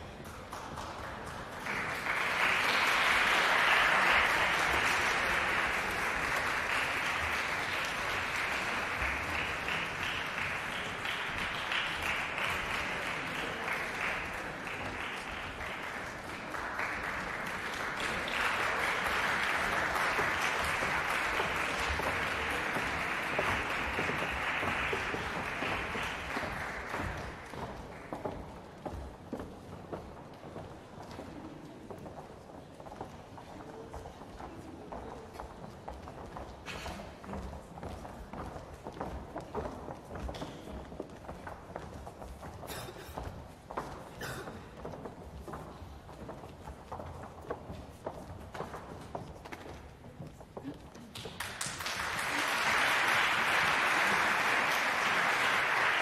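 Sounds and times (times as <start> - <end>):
audience applauding: 0.0 - 28.2, 51.1 - 56.0.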